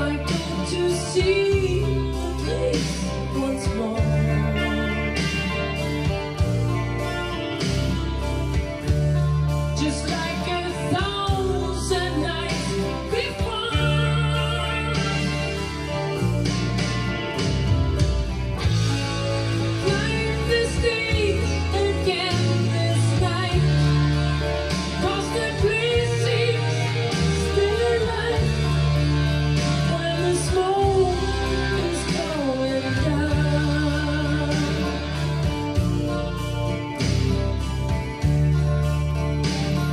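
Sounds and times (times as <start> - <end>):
person singing: 0.0 - 6.1, 9.7 - 16.4, 19.6 - 35.8
bass line: 0.0 - 39.9
guitar: 0.0 - 39.9.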